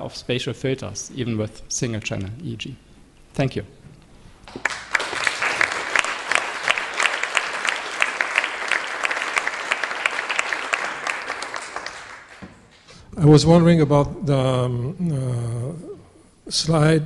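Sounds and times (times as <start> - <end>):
audience applauding: 4.5 - 12.6.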